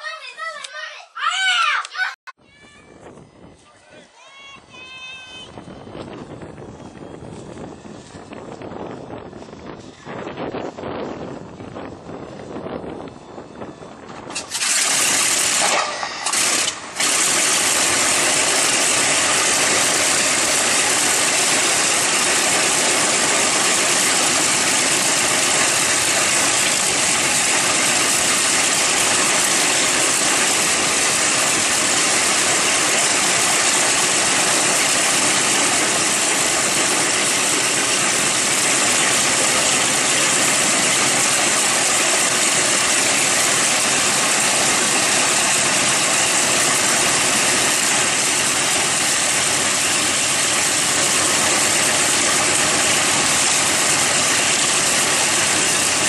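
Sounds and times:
piston aircraft engine running: 5.5s - 56.0s.

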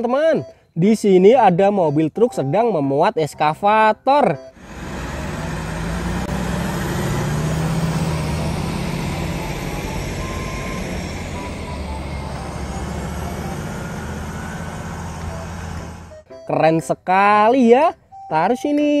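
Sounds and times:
diesel truck engine running: 4.5s - 16.3s
road and tyre noise: 4.5s - 16.3s.

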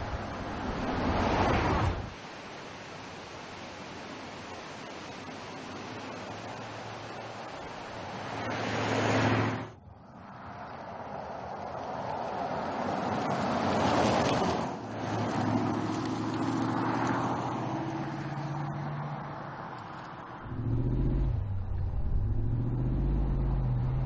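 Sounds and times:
car passing at speed: 0.2s - 2.1s, 8.0s - 24.0s
car engine accelerating: 20.4s - 24.0s.

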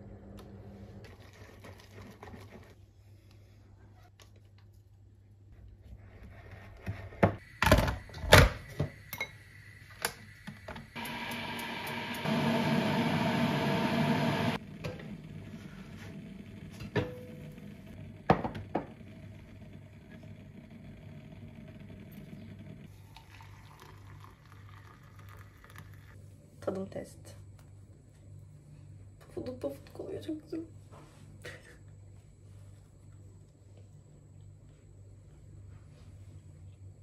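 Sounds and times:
low hum: 11.0s - 23.1s.

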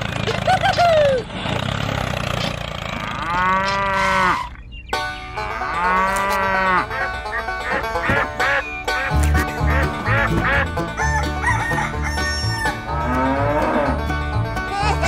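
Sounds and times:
cow mooing: 2.9s - 4.6s, 5.4s - 7.1s, 12.4s - 14.1s.

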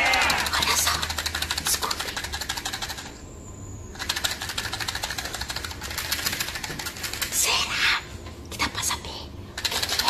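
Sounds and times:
rapid mechanical clicks: 0.0s - 3.2s, 3.9s - 7.6s, 9.6s - 10.0s.

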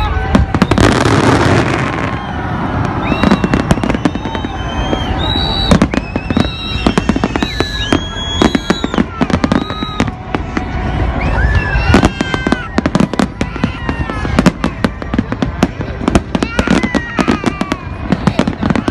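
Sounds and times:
fireworks bangs and crackles: 0.0s - 18.9s
fireworks whistles: 0.0s - 18.9s.

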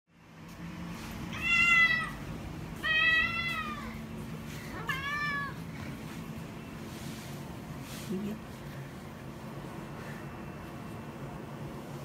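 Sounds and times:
cat meowing: 1.3s - 4.0s, 4.7s - 5.6s.

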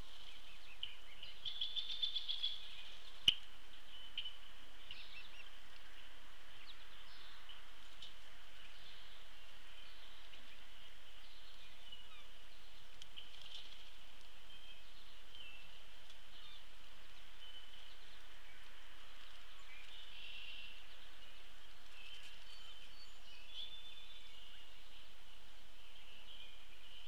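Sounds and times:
steady background hiss: 0.0s - 27.0s
birds chirping and whistling: 19.5s - 25.0s.

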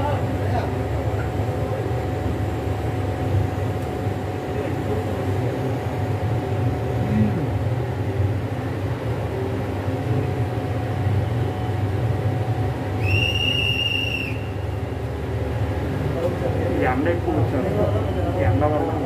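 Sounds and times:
train coach rolling rumble: 0.0s - 19.0s
high whistle-like tone: 13.0s - 14.7s.

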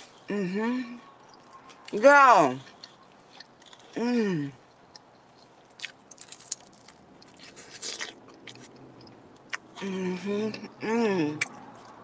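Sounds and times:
crunchy biting and chewing: 2.6s - 9.8s.

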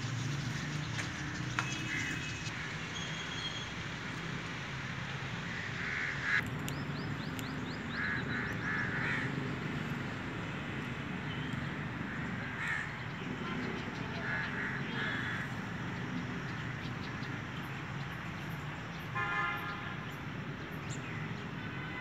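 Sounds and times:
outdoor background noise: 0.0s - 22.0s
harsh bird calls: 5.5s - 9.8s, 12.0s - 22.0s.

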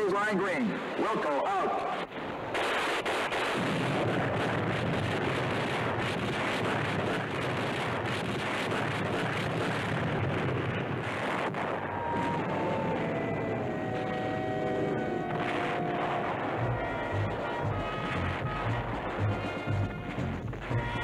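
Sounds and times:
steady rushing noise: 0.0s - 21.0s
faint crackles: 1.7s - 21.0s
held musical tone: 12.4s - 21.0s.

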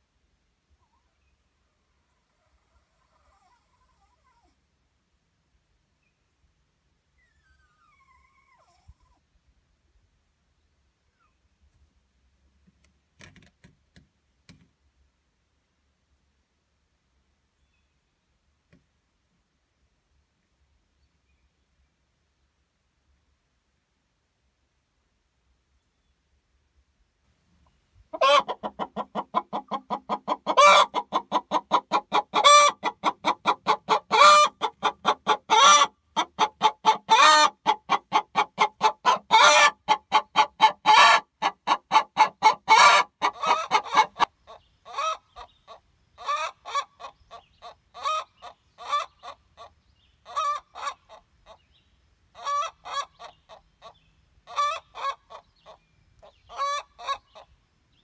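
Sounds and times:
hen clucking: 28.1s - 51.7s, 52.3s - 57.5s.

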